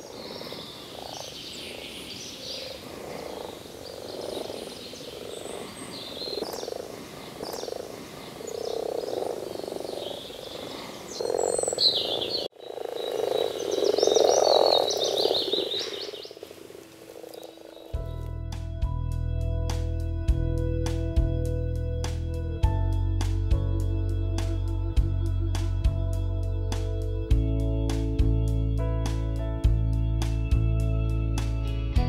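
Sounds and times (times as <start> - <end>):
birds chirping: 0.0 - 18.3
frogs croaking: 0.0 - 18.3
guitar music: 18.0 - 32.0.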